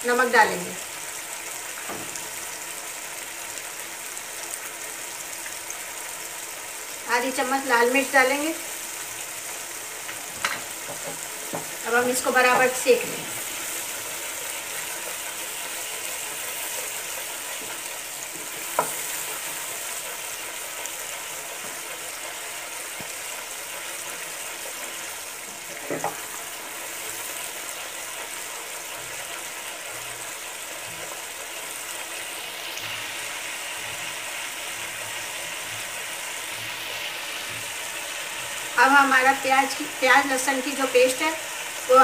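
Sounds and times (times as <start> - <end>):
paste sizzling in hot oil: 0.0 - 42.0
spatula knocks on pan: 10.4 - 11.7, 18.7 - 19.0.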